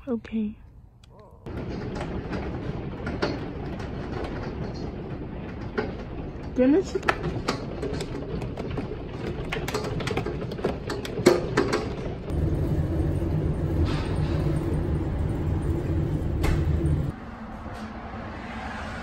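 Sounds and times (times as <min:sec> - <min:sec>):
train passing rumble: 0:12.1 - 0:19.0.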